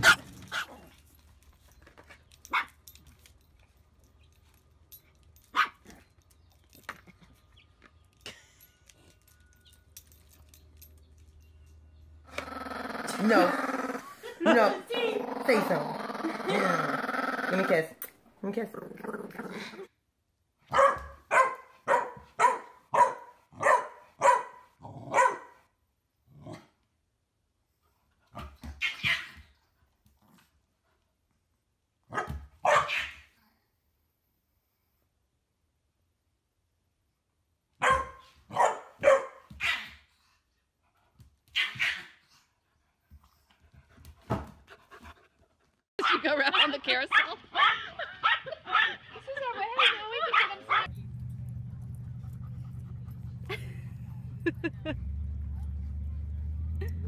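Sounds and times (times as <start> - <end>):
small dog barking: 2.5 - 2.8, 5.5 - 5.8, 20.7 - 25.6, 32.1 - 33.3, 37.8 - 40.0, 41.6 - 42.2, 47.1 - 49.0, 49.8 - 50.9.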